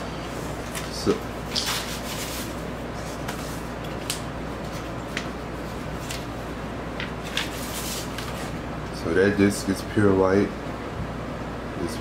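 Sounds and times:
paper and cardboard rustling: 0:07.2 - 0:08.6.

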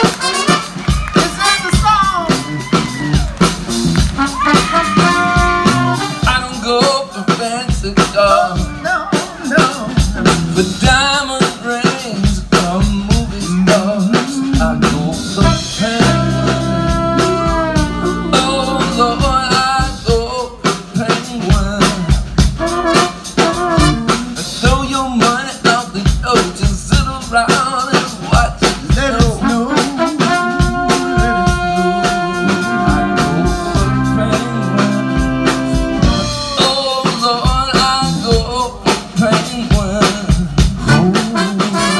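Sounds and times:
saxophone and trombone: 0:00.0 - 0:07.0, 0:12.5 - 0:20.4, 0:21.0 - 0:25.0, 0:28.6 - 0:41.9
drum kit beat: 0:00.0 - 0:41.9
man singing lead vocal: 0:05.9 - 0:41.9.

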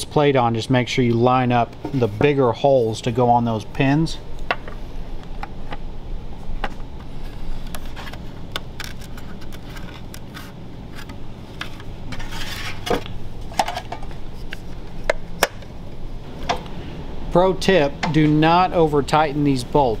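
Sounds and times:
scraping rub: 0:07.0 - 0:13.0.

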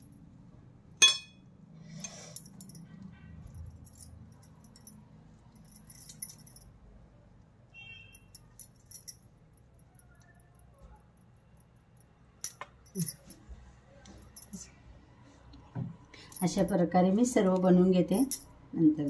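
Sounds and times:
glass bangles clinking: 0:01.0 - 0:01.4, 0:03.6 - 0:06.8, 0:07.8 - 0:10.7, 0:12.0 - 0:13.4, 0:18.1 - 0:18.6.

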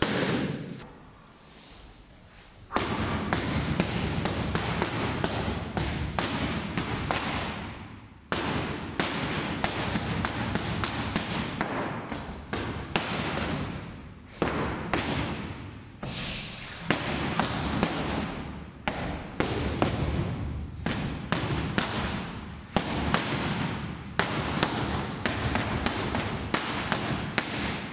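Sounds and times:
boxing gloves smacking focus mitts: 0:02.7 - 0:15.8, 0:16.8 - 0:27.9.

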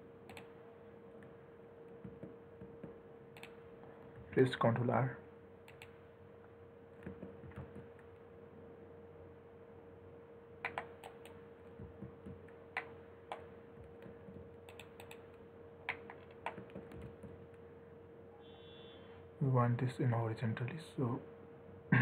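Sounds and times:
faint steady hum: 0:00.0 - 0:22.0
keyboard and mouse clicking: 0:00.3 - 0:00.5, 0:03.4 - 0:03.6, 0:05.7 - 0:06.0, 0:10.6 - 0:11.4, 0:12.2 - 0:17.4.

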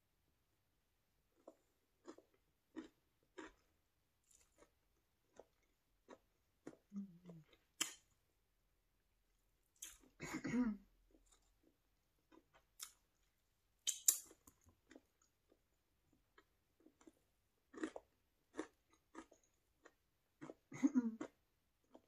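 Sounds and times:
food crunching: 0:01.4 - 0:08.1, 0:11.1 - 0:20.6
wet mouth clicks and smacks: 0:13.8 - 0:14.6.

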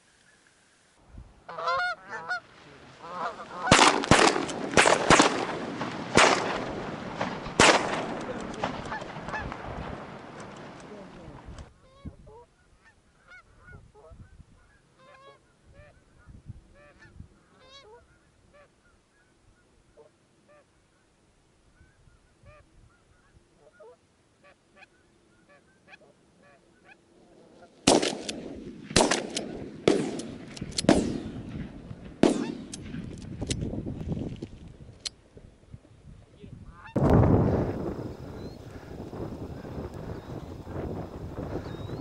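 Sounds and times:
geese honking: 0:01.5 - 0:05.2, 0:08.3 - 0:09.6, 0:11.8 - 0:21.1, 0:21.8 - 0:27.8, 0:36.7 - 0:37.0, 0:37.7 - 0:42.0
shotgun blasts: 0:03.7 - 0:10.4, 0:27.8 - 0:33.2.

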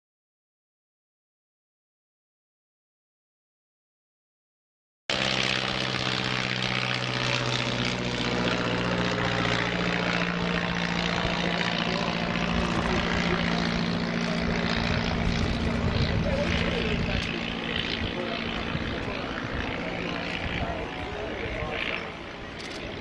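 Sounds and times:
propeller planes droning overhead: 0:05.1 - 0:23.0.

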